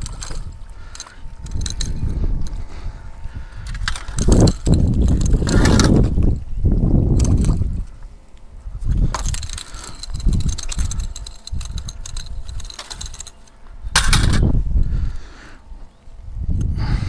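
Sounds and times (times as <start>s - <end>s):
landing net clicking and rattling: 0.0s - 2.6s, 3.7s - 6.4s, 7.1s - 7.8s, 9.0s - 14.5s
wind buffeting microphone: 0.0s - 17.0s.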